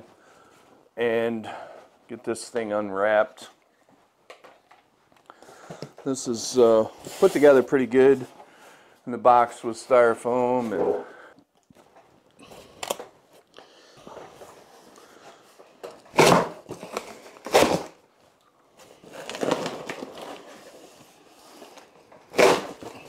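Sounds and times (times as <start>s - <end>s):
cardboard and styrofoam rustling: 14.0s - 23.0s.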